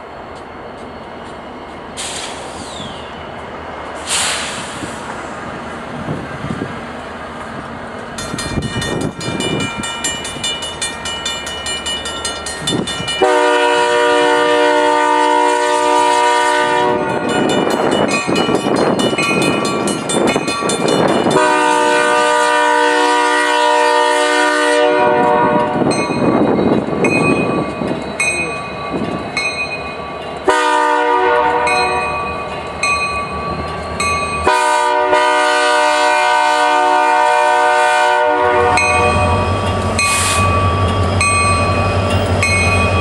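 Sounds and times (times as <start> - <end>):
rumble of passing locomotives: 0.0 - 43.0
crossing bell ringing: 8.1 - 14.5, 16.4 - 22.6, 25.2 - 35.4, 38.5 - 43.0
locomotive horn blasts: 13.2 - 17.3, 21.4 - 25.9, 30.5 - 32.2, 34.4 - 39.4.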